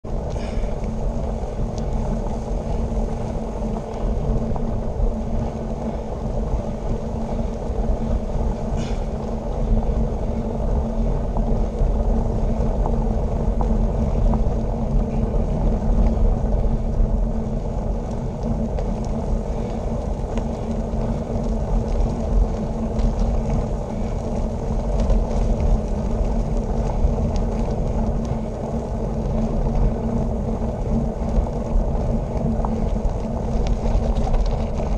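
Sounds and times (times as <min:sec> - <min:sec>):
bicycle tyres rolling on road: 0:00.0 - 0:34.9
wind rumble on microphone: 0:00.0 - 0:34.9.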